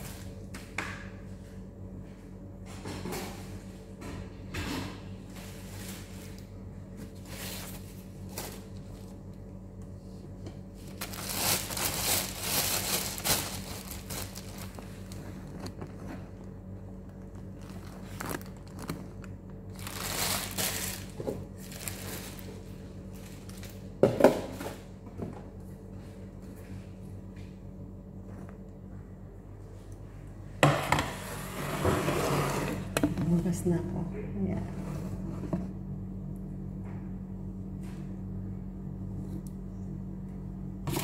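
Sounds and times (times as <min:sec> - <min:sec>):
steady low hum: 0:00.0 - 0:41.0
plastic bag crinkling: 0:07.1 - 0:09.4, 0:10.7 - 0:24.0.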